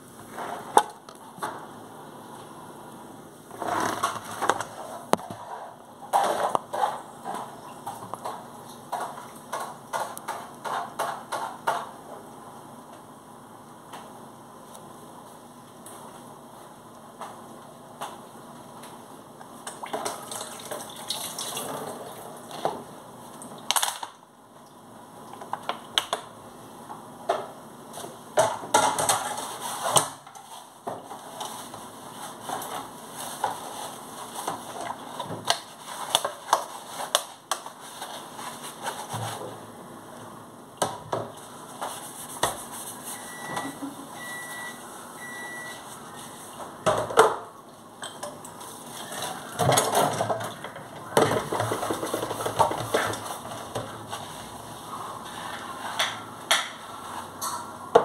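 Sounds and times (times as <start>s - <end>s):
water running in sink: 19.8s - 22.6s
short beeps: 43.2s - 45.8s.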